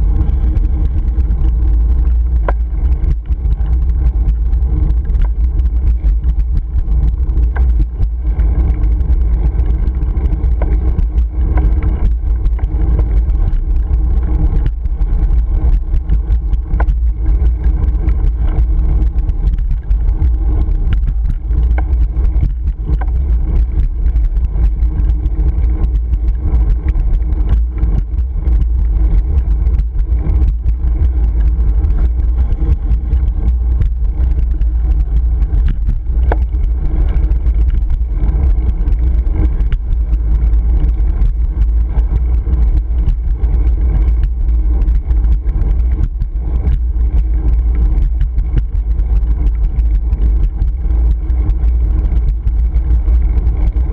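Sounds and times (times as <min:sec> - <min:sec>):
knocks and rattles from road: 0:00.0 - 0:52.2
wind buffeting microphone: 0:00.0 - 0:53.9.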